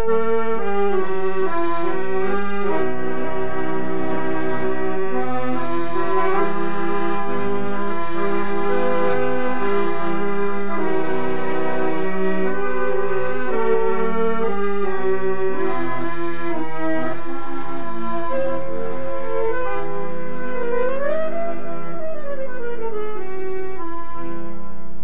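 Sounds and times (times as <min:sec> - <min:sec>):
accordions playing a tune: 0:00.0 - 0:25.0.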